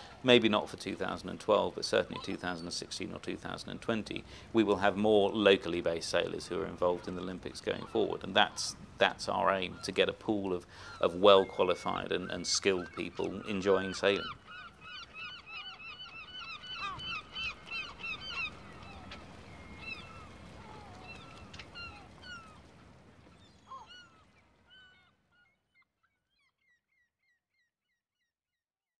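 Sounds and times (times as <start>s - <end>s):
steady outdoor hiss: 0.0s - 24.8s
flock of birds chattering: 0.0s - 25.1s.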